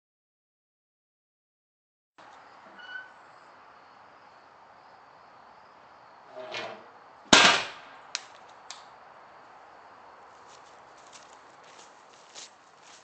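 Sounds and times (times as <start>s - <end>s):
short creak: 2.6s - 3.2s
loud sharp bang: 7.3s - 7.9s.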